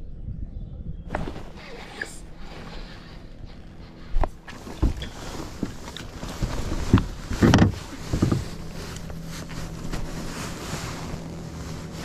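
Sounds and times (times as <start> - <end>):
low steady hum: 0.0 - 12.0
wind on microphone: 0.0 - 12.0
fish knocking and thumping: 4.5 - 9.2.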